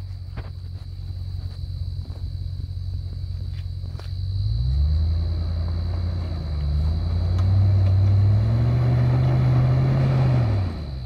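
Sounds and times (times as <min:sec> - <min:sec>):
engine revving under load: 0:04.4 - 0:11.0.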